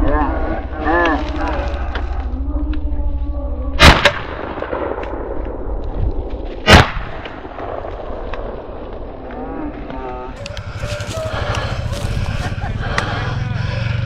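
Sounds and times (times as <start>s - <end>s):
shotgun blasts: 3.8s - 5.4s, 6.6s - 8.6s.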